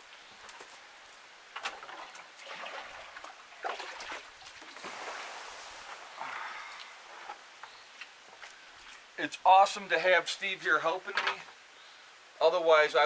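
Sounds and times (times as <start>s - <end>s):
water sloshing and trickling: 1.5s - 7.5s
water splashing: 1.6s - 7.0s.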